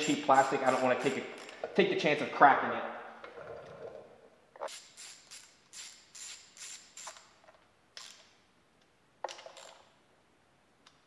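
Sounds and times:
ratchet wrench clicking: 0:00.0 - 0:01.7, 0:04.7 - 0:07.4, 0:08.0 - 0:08.3.

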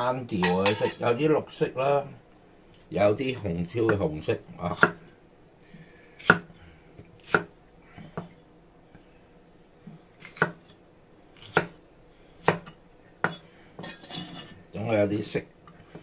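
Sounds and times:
knife chopping on board: 0:04.7 - 0:05.0, 0:06.2 - 0:06.5, 0:07.2 - 0:07.5, 0:10.2 - 0:10.7, 0:11.4 - 0:11.8, 0:12.4 - 0:13.4.

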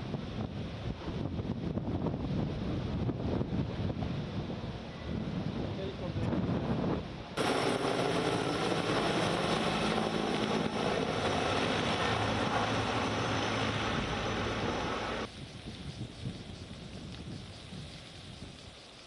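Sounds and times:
helicopter rotor and engine drone: 0:04.5 - 0:15.3.

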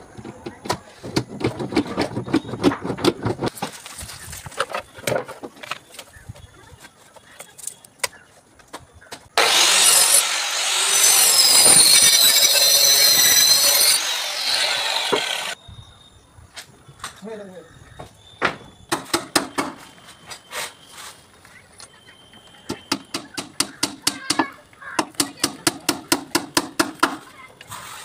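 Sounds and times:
plywood boards clattering: 0:00.1 - 0:06.2
power tool whining: 0:09.4 - 0:15.6.

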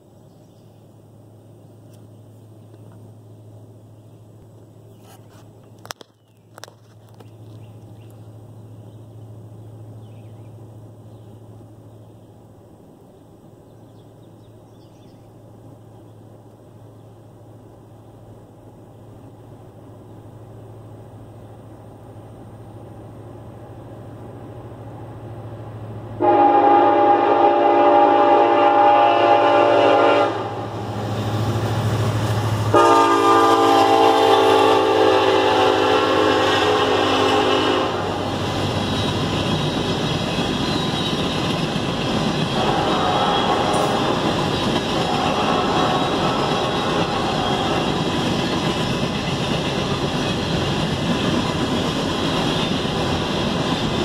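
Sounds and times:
locomotive rumble: 0:00.2 - 0:54.0
train horn blasts: 0:26.2 - 0:30.8, 0:32.7 - 0:38.3, 0:42.5 - 0:44.3, 0:45.0 - 0:48.0
freight cars clattering past: 0:38.1 - 0:54.0.

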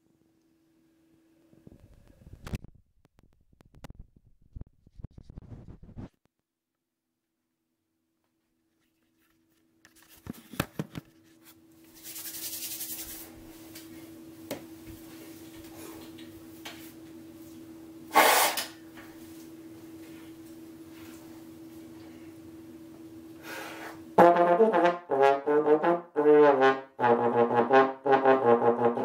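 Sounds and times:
short hiss: 0:18.1 - 0:18.8
steady low hum: 0:18.8 - 0:25.2.

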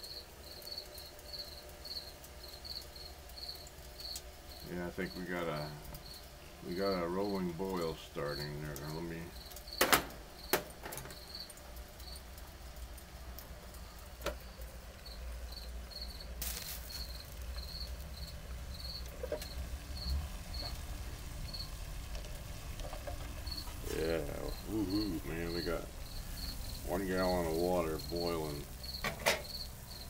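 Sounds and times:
crickets chirping: 0:00.0 - 0:30.0
stove and boiling water rumble: 0:00.0 - 0:30.0
low voice: 0:23.8 - 0:25.9, 0:26.8 - 0:28.6.

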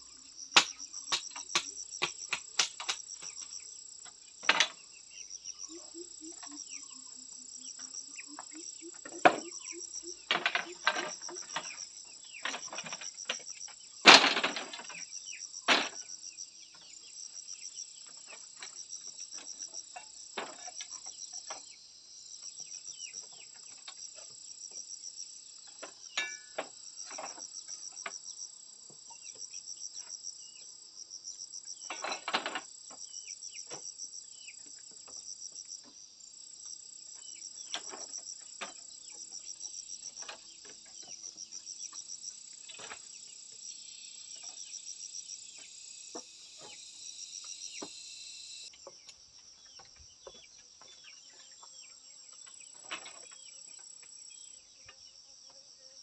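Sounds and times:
insects chorus: 0:00.0 - 0:56.0
bamboo slats knocking: 0:00.6 - 0:03.5, 0:14.0 - 0:15.0, 0:26.2 - 0:27.4.

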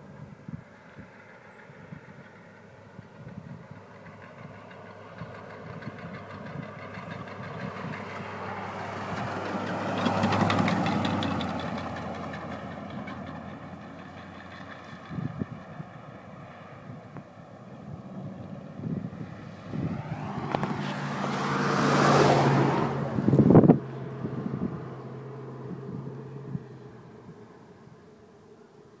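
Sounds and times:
car driving past: 0:03.8 - 0:29.0
rapid knocking from wheel: 0:09.2 - 0:13.4.

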